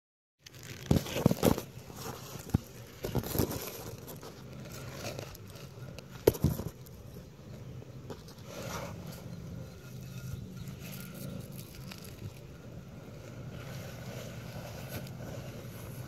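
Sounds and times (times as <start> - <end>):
camera handling rustling and knocks: 0.8 - 7.0.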